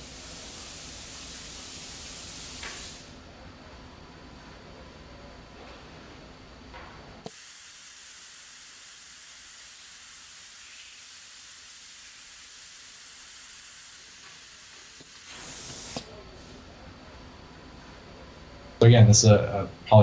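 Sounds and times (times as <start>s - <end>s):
hiss of air: 0.0s - 3.2s, 7.2s - 16.6s.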